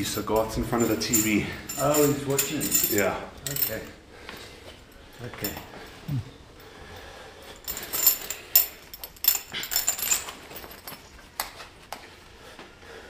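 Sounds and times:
metallic clinking and rattling: 0.0s - 4.0s, 5.0s - 5.8s, 7.4s - 11.6s.

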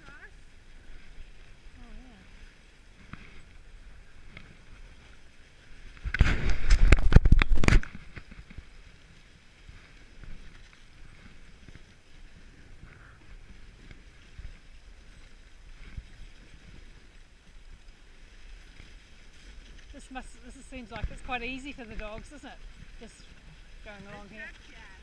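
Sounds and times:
loud scraping crunch: 2.9s - 8.8s
sled runners hissing on snow: 8.6s - 25.0s.

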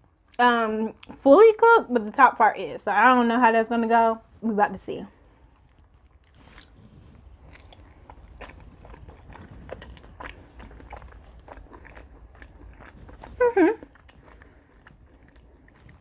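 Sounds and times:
person chewing crunchy food: 5.2s - 16.0s.

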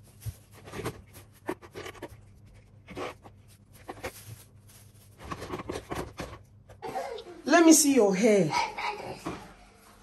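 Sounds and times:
flour rubbed through mesh sieve: 0.0s - 1.5s.

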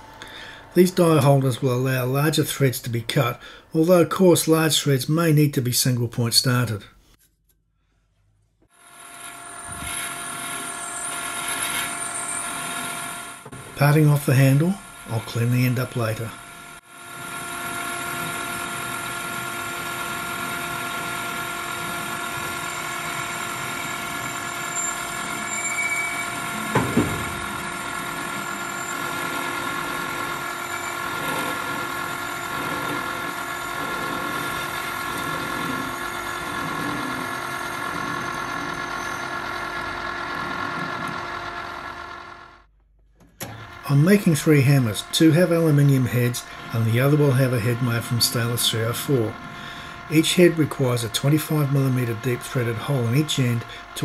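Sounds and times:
metal lathe whine: 8.8s - 42.6s, 43.4s - 54.0s
parting tool cutting metal: 17.7s - 39.4s.

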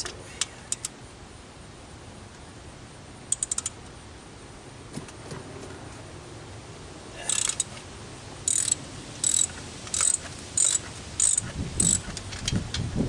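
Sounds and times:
ratchet wrench clicking: 3.3s - 3.8s, 7.3s - 7.7s, 8.5s - 12.6s.

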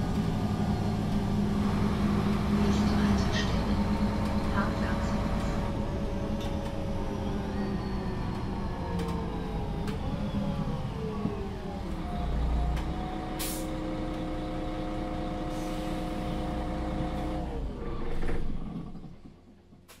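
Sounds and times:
bus engine idling: 0.0s - 17.9s
air brake hiss: 13.4s - 13.7s, 15.5s - 16.2s.

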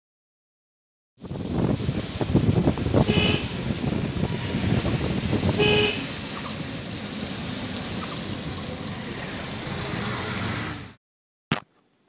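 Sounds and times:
road and wind rumble: 1.2s - 11.0s
vehicle horn honk: 3.0s - 3.6s, 5.5s - 6.2s.

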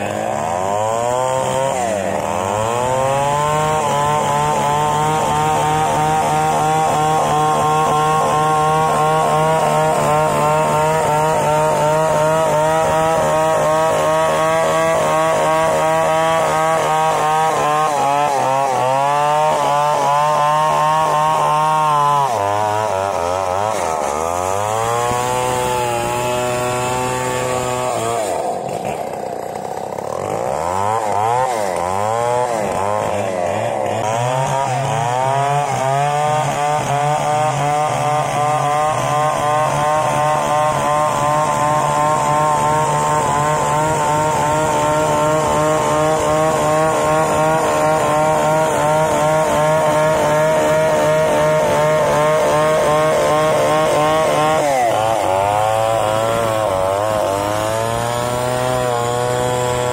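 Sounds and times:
chainsaw cutting a log: 0.0s - 59.9s.

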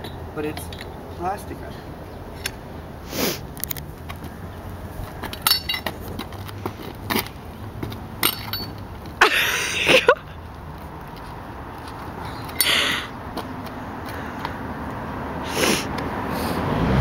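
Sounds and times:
metallic clinks of car wheel: 0.0s - 1.0s, 5.2s - 9.1s.

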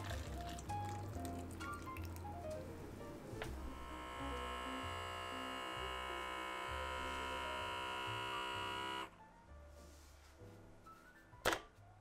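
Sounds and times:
steady electric buzz: 3.6s - 9.1s.

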